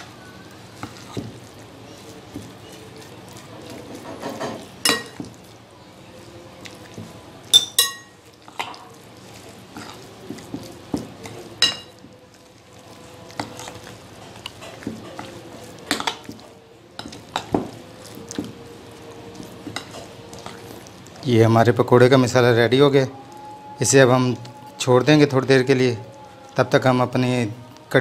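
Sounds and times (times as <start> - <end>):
spoon scraping thick batter: 0.0 - 27.3
spoon clinking against glass: 4.2 - 5.2, 7.5 - 8.2.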